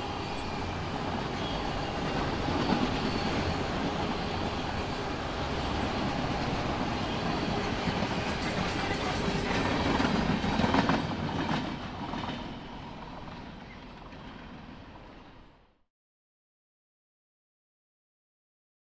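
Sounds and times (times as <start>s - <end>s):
steel wheels clacking over rail joints: 6.4s - 12.6s.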